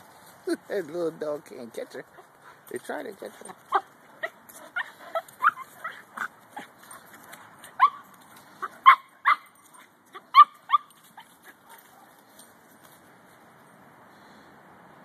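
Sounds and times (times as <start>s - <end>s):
small dogs yipping and barking: 3.3s - 12.5s.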